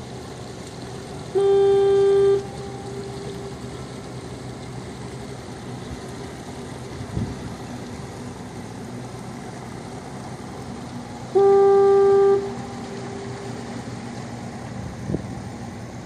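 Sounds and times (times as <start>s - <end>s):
low background rumble: 0.0s - 16.0s
foghorn blast: 1.3s - 3.7s, 11.3s - 13.8s.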